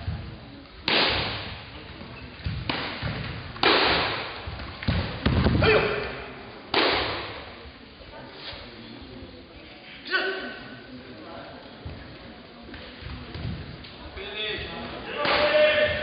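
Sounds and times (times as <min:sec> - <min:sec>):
feet striking mat: 0:00.0 - 0:05.8.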